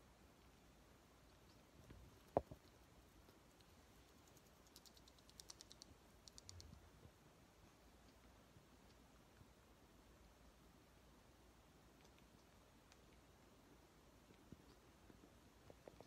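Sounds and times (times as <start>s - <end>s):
parrots clicking: 4.3s - 6.6s.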